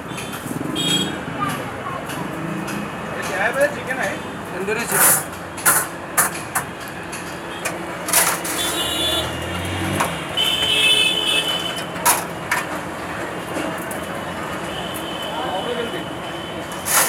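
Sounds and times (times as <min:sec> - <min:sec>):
traffic: 0:00.0 - 0:17.0
metal skewers clicking and knocking: 0:01.4 - 0:10.7, 0:11.4 - 0:15.1.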